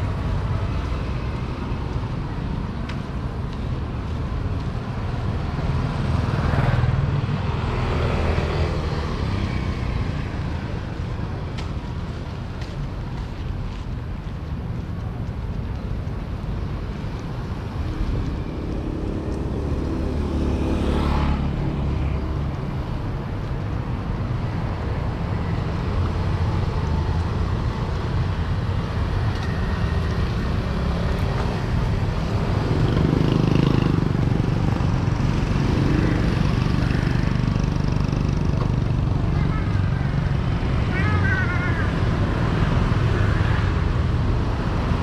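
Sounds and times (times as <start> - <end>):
street traffic din: 0.0 - 45.0
vehicle passing: 18.4 - 22.0.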